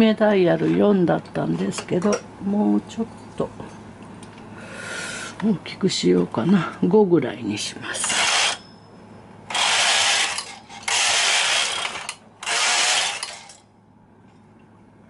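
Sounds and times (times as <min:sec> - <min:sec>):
knitting machine carriage passing: 0:08.1 - 0:08.6, 0:09.5 - 0:13.6.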